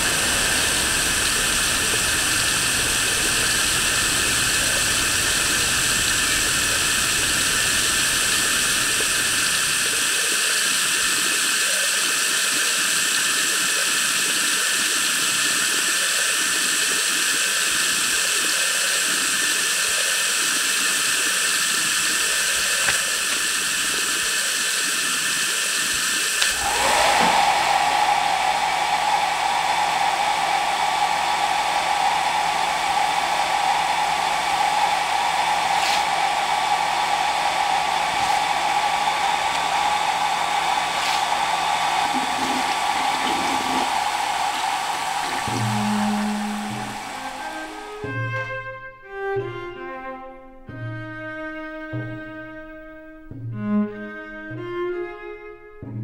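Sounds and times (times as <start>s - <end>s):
hair dryer whining: 0.0s - 48.3s
steady hiss: 0.0s - 49.3s.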